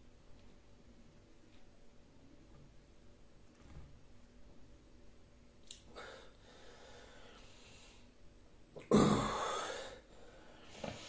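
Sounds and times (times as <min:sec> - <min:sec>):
man breathing heavily: 0:05.9 - 0:08.1, 0:09.2 - 0:11.0.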